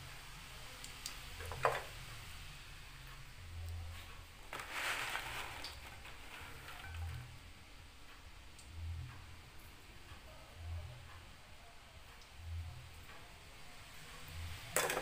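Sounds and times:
cookies rattling onto paper towel: 4.5s - 7.3s.

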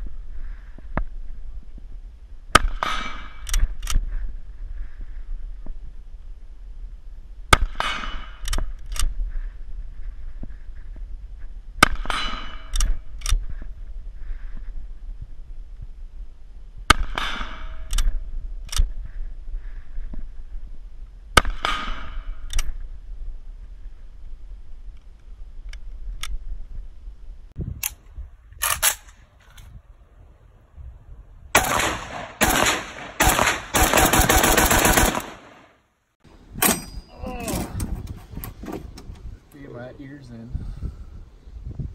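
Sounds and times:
rifle shots with ringing tail: 31.5s - 35.8s.

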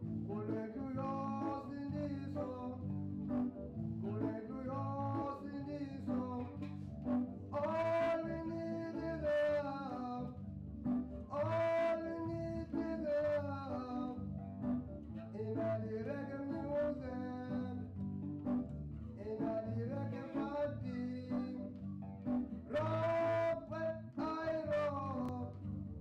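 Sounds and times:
electric bass line: 0.0s - 26.0s
electric guitar: 0.0s - 26.0s
man singing: 0.3s - 3.4s, 4.0s - 6.7s, 7.5s - 10.4s, 11.3s - 14.2s, 15.3s - 17.9s, 19.2s - 21.7s, 22.7s - 25.6s.

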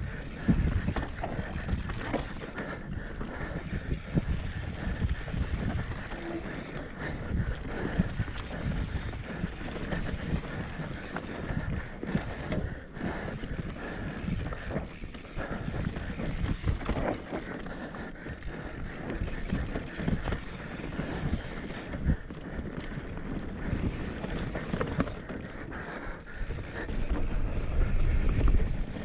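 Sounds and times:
wind on microphone: 0.0s - 17.2s, 26.2s - 29.0s
bike knocking and rattling: 0.0s - 29.0s.

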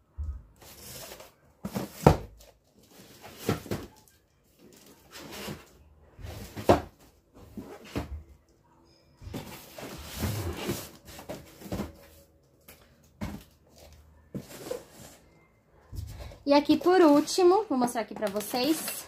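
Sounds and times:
cardboard boxes knocking and rustling: 0.7s - 4.0s, 4.7s - 8.3s, 9.2s - 15.2s
cardboard scraping rustle: 9.3s - 12.2s.

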